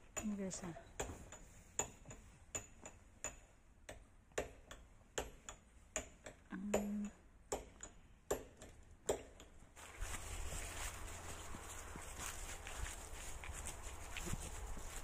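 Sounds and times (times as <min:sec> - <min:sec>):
person humming: 0:06.5 - 0:07.2
footsteps tapping on rocky ground: 0:09.8 - 0:15.0.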